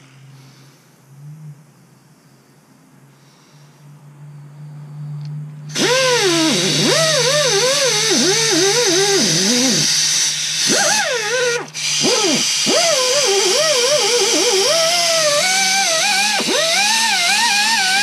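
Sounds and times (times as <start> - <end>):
air die grinder whining: 5.7 - 18.0.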